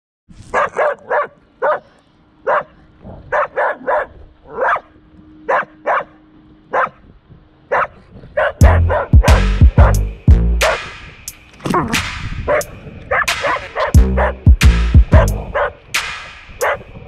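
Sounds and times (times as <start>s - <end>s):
dog barking: 0.5s - 4.9s, 5.5s - 7.0s, 7.7s - 9.9s, 12.5s - 14.4s, 15.2s - 15.8s, 16.6s - 16.9s
deep bass sound: 8.6s - 10.8s, 13.9s - 15.6s.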